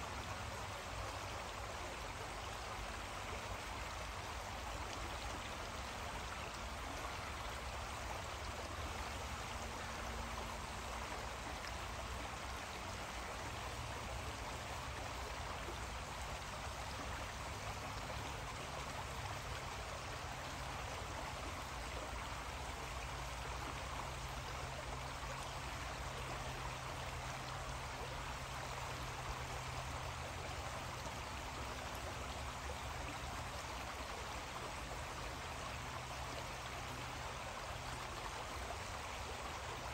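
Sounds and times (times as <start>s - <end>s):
creek water running: 0.0s - 39.9s.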